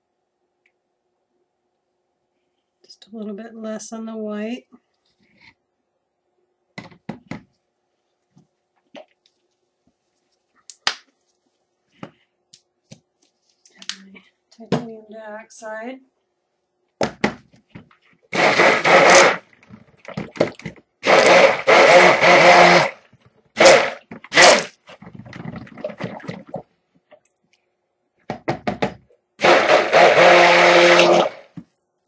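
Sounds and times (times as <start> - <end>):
handheld electric mixer: 18.4 - 19.4, 21.0 - 23.0, 23.6 - 24.7, 29.4 - 31.6.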